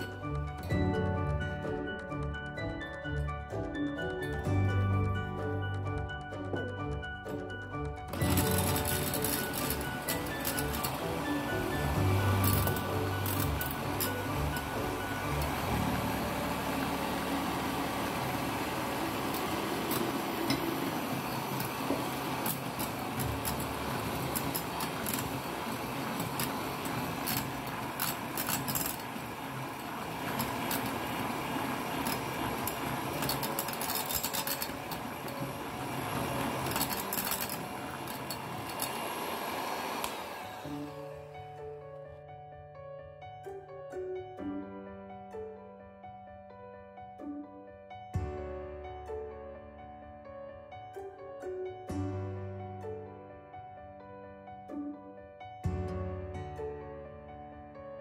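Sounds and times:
background music: 0.0 - 58.0
electric hand mixer running: 8.0 - 41.5.

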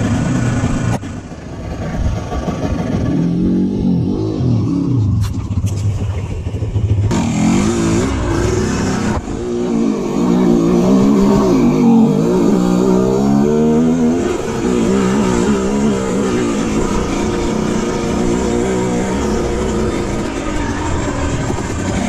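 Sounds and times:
dirt bike engine revving: 2.2 - 22.0.

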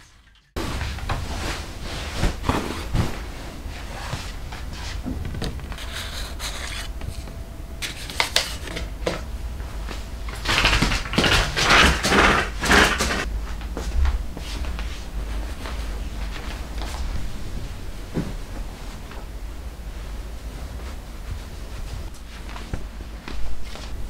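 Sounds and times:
cloth rustling: 14.4 - 24.0.

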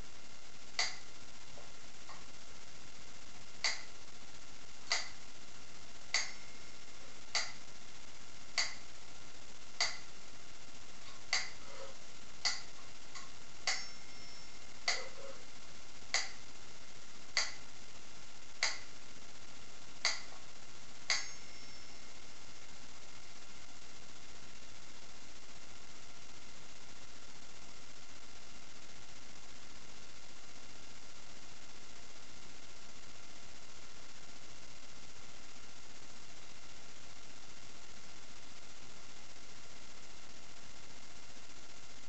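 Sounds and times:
metronome ticking: 4.9 - 5.2, 6.1 - 6.5, 7.3 - 7.6, 8.6 - 8.8, 9.8 - 10.1, 11.3 - 11.6, 12.4 - 15.2, 16.1 - 16.4, 17.4 - 17.6, 18.6 - 18.9, 20.0 - 20.3, 21.1 - 21.9.

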